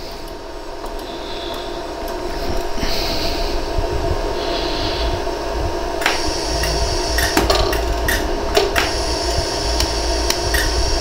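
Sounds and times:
steady hum: 0:00.0 - 0:11.0
laser welder sharp ticks: 0:06.0 - 0:11.0.

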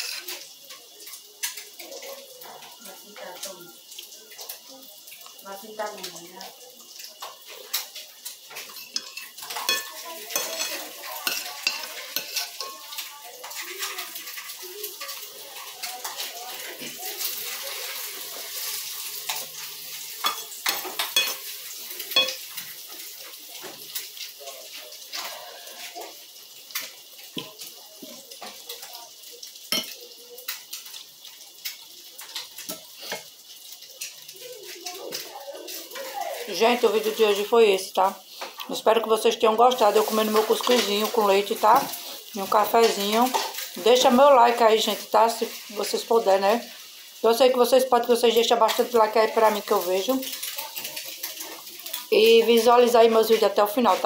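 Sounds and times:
glass and spoon clinking: 0:08.7 - 0:12.8, 0:20.2 - 0:21.4, 0:22.2 - 0:22.4, 0:29.7 - 0:30.0.

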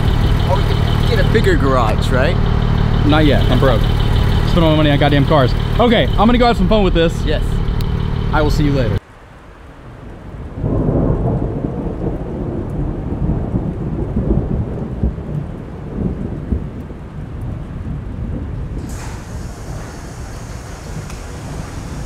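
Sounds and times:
thunder rumbling: 0:00.0 - 0:09.0, 0:09.9 - 0:22.0
steady rain: 0:00.0 - 0:22.0
bright hiss: 0:18.8 - 0:22.0.

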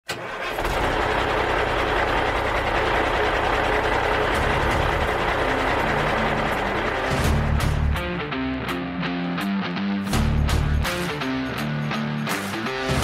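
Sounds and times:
heavy engine running: 0:00.1 - 0:08.2
low bass intro music: 0:02.2 - 0:13.0.

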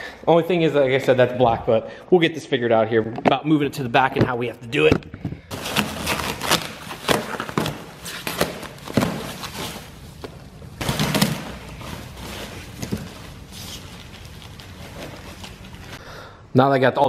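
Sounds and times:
plastic wrap ripping: 0:05.5 - 0:10.0
plastic wrap crinkling: 0:05.5 - 0:16.0.

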